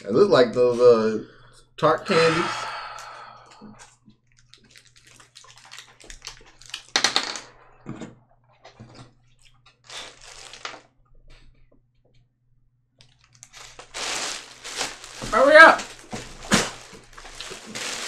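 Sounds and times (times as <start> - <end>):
plastic wrapper crinkling: 4.4 - 7.0, 9.8 - 10.9, 13.0 - 18.0.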